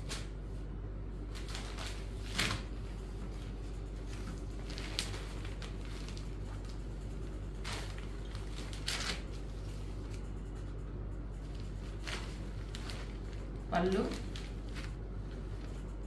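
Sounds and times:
steady low hum: 0.0 - 16.0
fabric rustling and swishing: 11.5 - 15.0.

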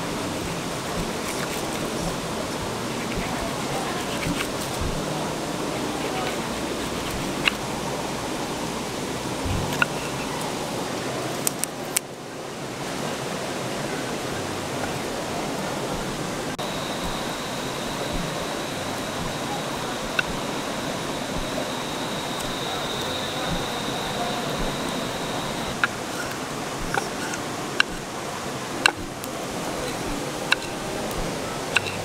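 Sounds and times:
river water rushing: 12.2 - 32.0
high-pitched tone: 15.9 - 26.0
sharp clicks: 16.0 - 26.0.

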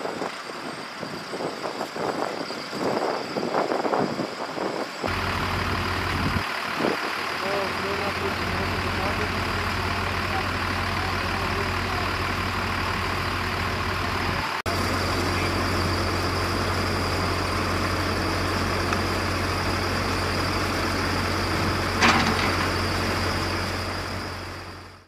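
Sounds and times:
heavy machinery engine idling: 5.0 - 25.0.

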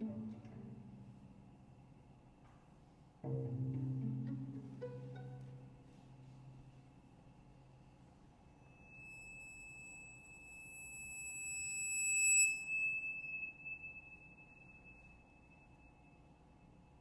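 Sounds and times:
finger cymbals ringing: 8.6 - 16.8.

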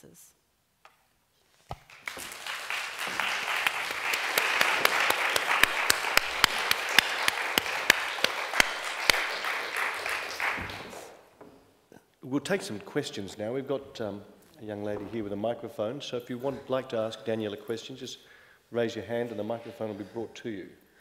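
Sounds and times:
loud single claps: 1.7 - 11.2
audience applause: 1.9 - 11.2.

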